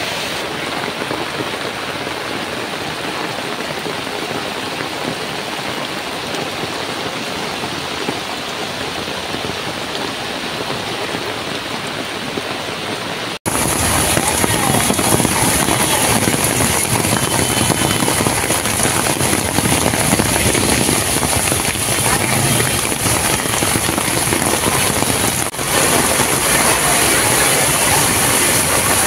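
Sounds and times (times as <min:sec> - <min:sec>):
rain: 0:00.0 - 0:29.0
vehicle engines: 0:13.5 - 0:29.0.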